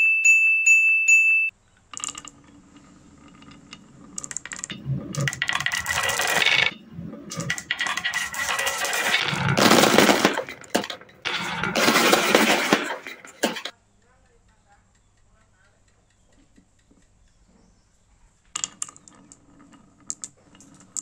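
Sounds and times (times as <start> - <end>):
marbles tumbling into plastic truck: 1.9 - 13.7
wooden marbles rattling down tracks: 1.9 - 13.7, 18.5 - 21.0.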